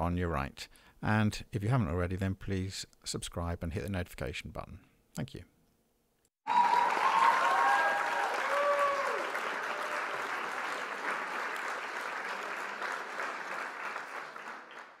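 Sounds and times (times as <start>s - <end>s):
crowd applauding: 6.4s - 15.0s
voices cheering: 6.5s - 13.5s.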